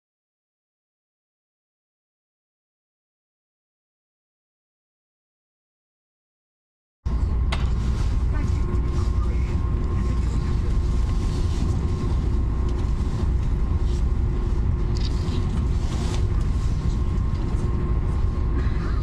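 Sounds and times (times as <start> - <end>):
constant hum: 7.1 - 19.0
train rumbling in a tunnel: 7.1 - 19.0.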